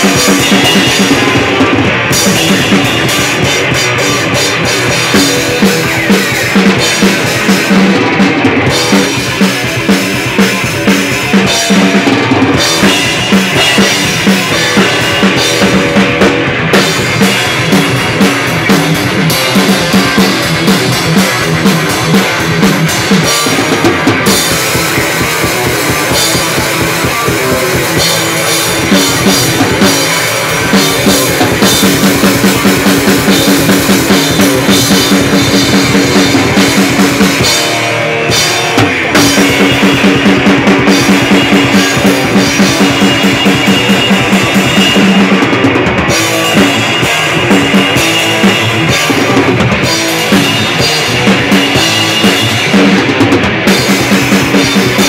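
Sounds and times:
drum kit fast rhythm: 0.0s - 55.0s
electric guitar: 0.0s - 55.0s.

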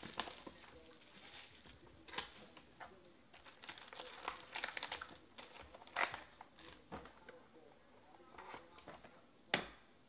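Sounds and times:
foil packs crinkling: 0.0s - 2.6s, 3.4s - 6.8s.

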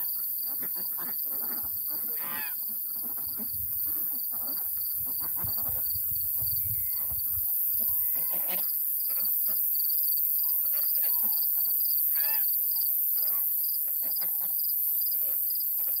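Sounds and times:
ducks quacking: 0.5s - 5.9s.

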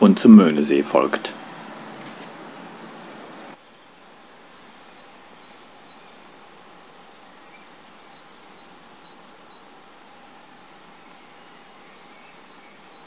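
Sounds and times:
faint steady hiss: 0.0s - 13.0s
high bird chirps: 1.7s - 2.5s.

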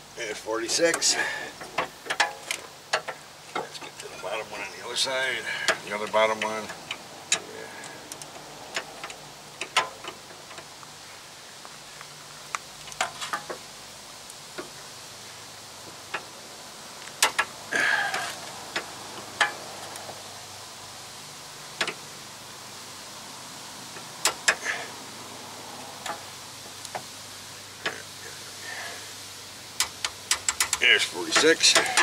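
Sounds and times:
torque wrench clicking: 29.8s - 32.0s.

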